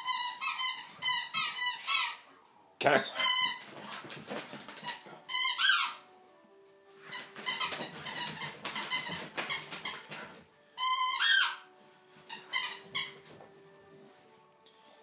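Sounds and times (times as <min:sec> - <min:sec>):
squeaky toy squeaking: 0:00.0 - 0:02.3, 0:03.2 - 0:04.1, 0:04.8 - 0:06.1, 0:07.0 - 0:13.4
dog scuffing with toy: 0:03.3 - 0:05.1, 0:06.9 - 0:14.4.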